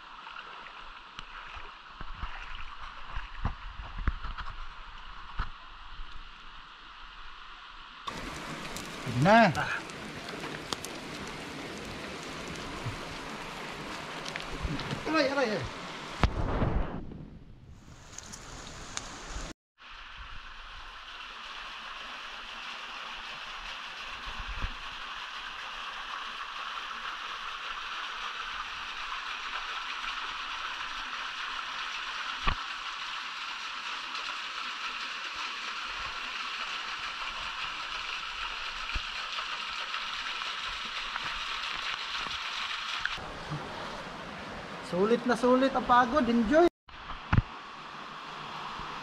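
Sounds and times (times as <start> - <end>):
water splashing over rock: 0.0 - 5.8, 8.1 - 16.4, 21.2 - 43.2.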